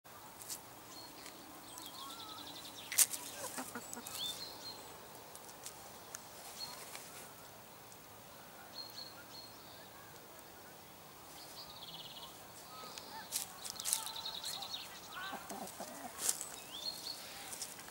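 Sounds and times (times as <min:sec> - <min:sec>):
small birds chirping: 0:00.2 - 0:17.9
hens scratching in leaves: 0:00.4 - 0:04.5, 0:05.3 - 0:07.5, 0:12.3 - 0:17.9.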